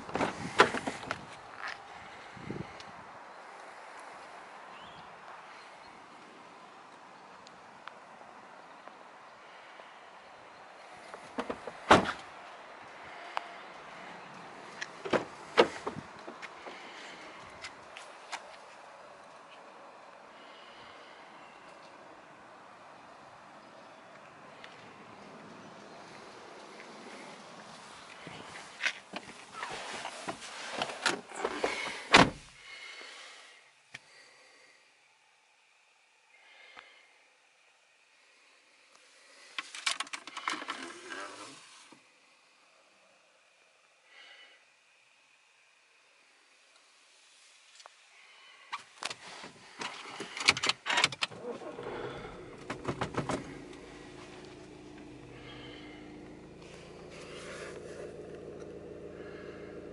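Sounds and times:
car door shutting: 11.4s - 12.2s, 29.8s - 32.5s, 50.2s - 59.0s
diesel engine starting and idling: 51.1s - 59.9s.

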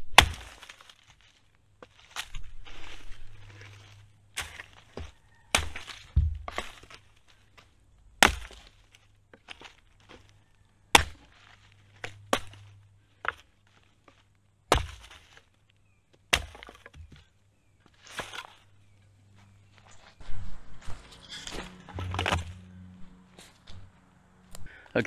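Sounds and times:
dry branches snapping: 0.0s - 15.6s, 20.9s - 23.8s
twigs rustling: 0.0s - 24.8s.

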